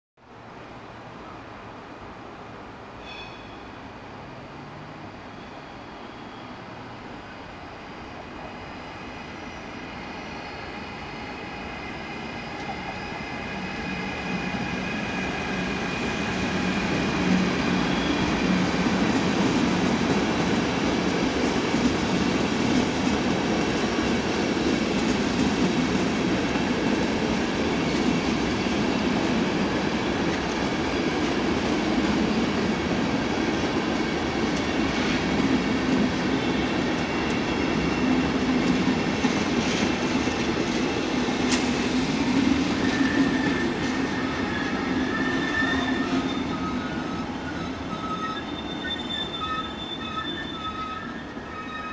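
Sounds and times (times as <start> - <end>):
train coaches rumbling past: 0.3 - 51.9
locomotive whine: 8.5 - 20.7, 34.9 - 51.9.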